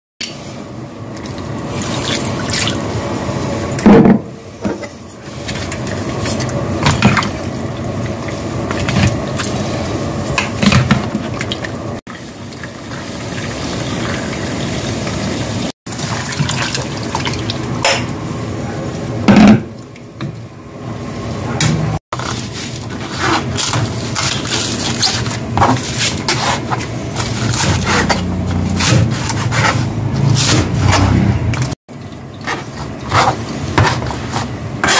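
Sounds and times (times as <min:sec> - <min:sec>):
liquid pouring and splashing: 0:01.1 - 0:03.0, 0:05.2 - 0:18.0
wooden spatula knocking and scraping: 0:32.4 - 0:34.9.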